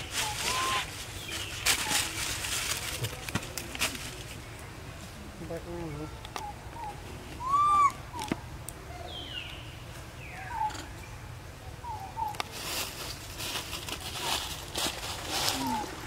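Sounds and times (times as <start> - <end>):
monkey coo call: 0.1 - 1.0, 6.4 - 9.3, 15.4 - 16.0
monkey peeps: 0.2 - 0.9, 6.3 - 8.4.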